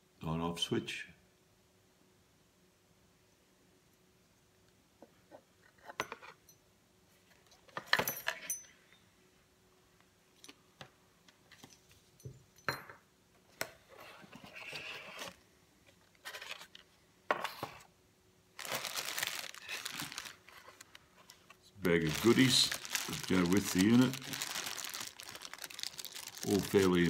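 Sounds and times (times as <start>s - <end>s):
plastic bag rustling: 18.6s - 27.0s.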